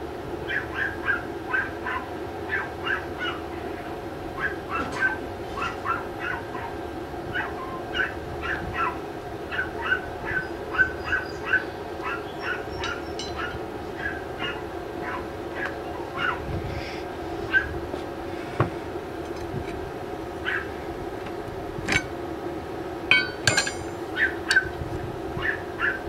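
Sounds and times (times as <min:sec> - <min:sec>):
dog yapping: 0:00.5 - 0:03.7, 0:04.4 - 0:16.4, 0:17.5 - 0:17.7, 0:20.4 - 0:20.7, 0:25.4 - 0:26.0
steady hum: 0:11.4 - 0:25.3.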